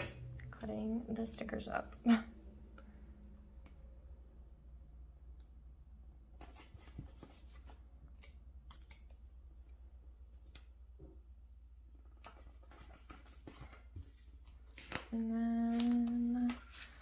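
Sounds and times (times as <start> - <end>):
paper crinkling: 12.3 - 17.0.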